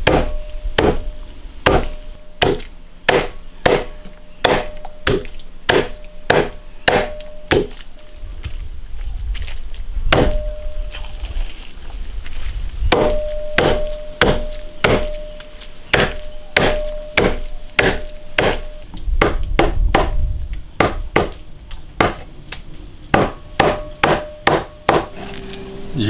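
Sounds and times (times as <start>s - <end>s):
cleaver chopping on wooden block: 0.0s - 7.8s, 10.1s - 10.5s, 12.9s - 20.2s, 20.8s - 21.4s, 22.0s - 22.3s, 23.1s - 25.2s.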